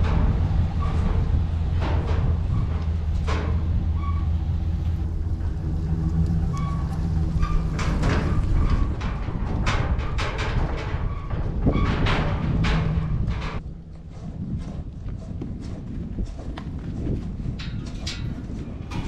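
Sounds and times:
truck engine idling: 0.0s - 10.2s.

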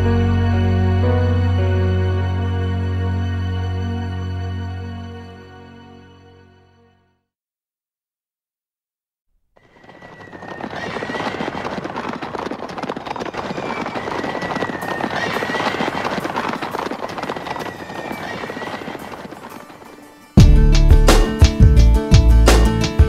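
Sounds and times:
horses galloping: 9.6s - 20.1s
guitar-led band music: 20.4s - 23.0s.

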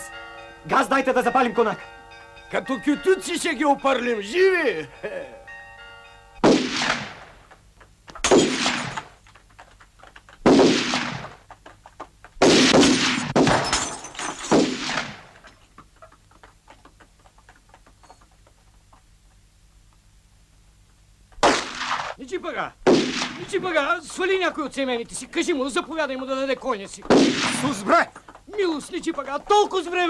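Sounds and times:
rifle shots echoing: 6.4s - 7.4s, 8.2s - 9.1s, 10.4s - 11.4s, 12.4s - 13.8s, 14.4s - 15.4s, 21.4s - 22.2s, 22.8s - 23.8s, 27.0s - 28.0s
faint clattering: 15.2s - 20.0s, 27.7s - 30.0s.

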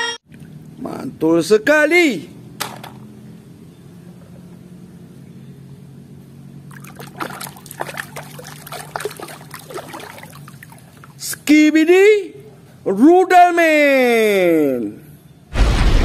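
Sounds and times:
low steady hum: 0.0s - 11.3s
water splashing in plastic basin: 6.7s - 11.2s.

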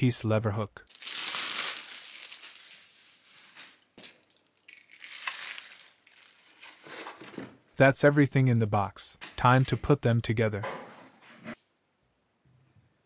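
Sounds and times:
packaging rustling and crinkling: 0.9s - 7.5s.

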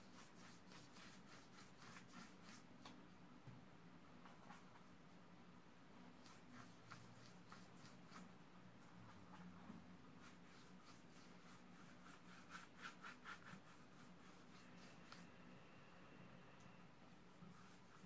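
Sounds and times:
brush strokes on paper: 0.0s - 2.8s, 6.1s - 16.2s, 17.0s - 18.0s.

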